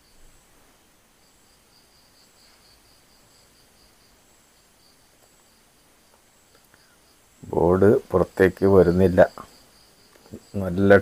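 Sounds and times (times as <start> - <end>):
faint small clicks: 6.1 - 6.8.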